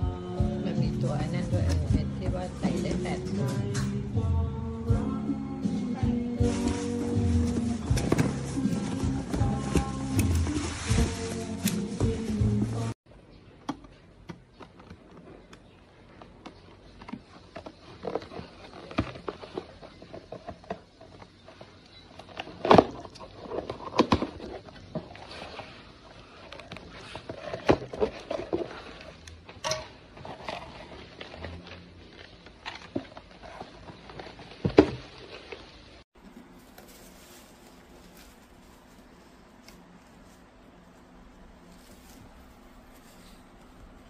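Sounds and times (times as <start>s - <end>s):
packaging rustling: 6.4s - 13.0s, 36.2s - 44.0s.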